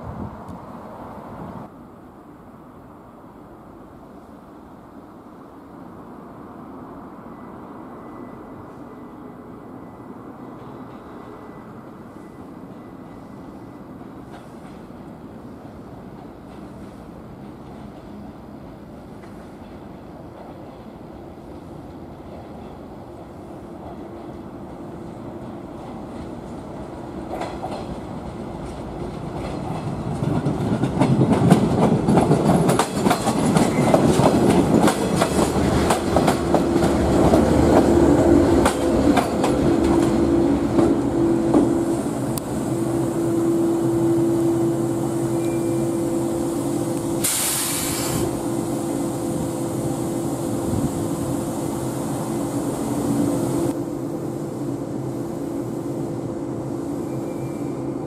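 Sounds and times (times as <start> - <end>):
steady train hum: 0.0 - 58.0
train wheels clicking over rail joints: 23.8 - 41.8
air hiss: 44.8 - 53.8.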